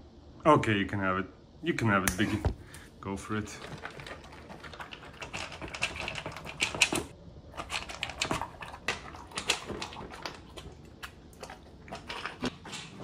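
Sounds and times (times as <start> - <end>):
dog crunching kibble in bowl: 3.4 - 13.0.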